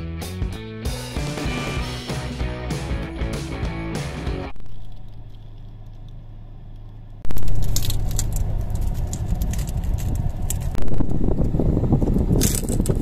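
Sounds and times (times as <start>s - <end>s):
low steady hum: 4.5s - 13.0s.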